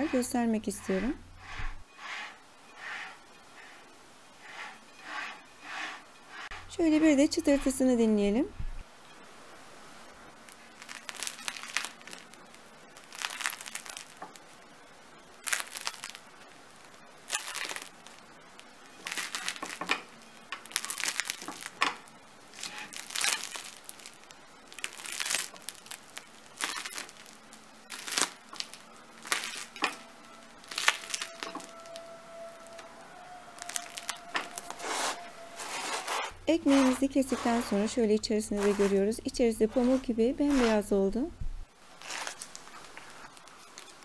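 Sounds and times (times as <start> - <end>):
bread crust crackling: 10.0 - 44.0.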